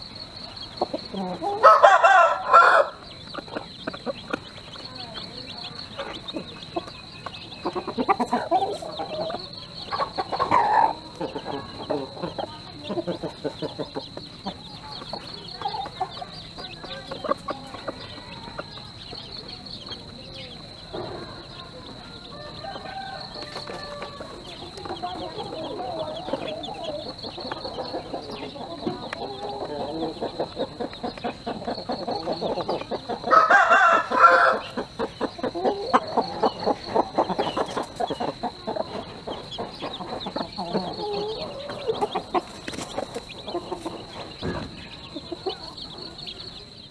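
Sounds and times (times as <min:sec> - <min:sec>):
chicks peeping: 0:00.0 - 0:46.9
rooster crowing: 0:01.4 - 0:03.0, 0:22.0 - 0:24.5, 0:33.3 - 0:34.8.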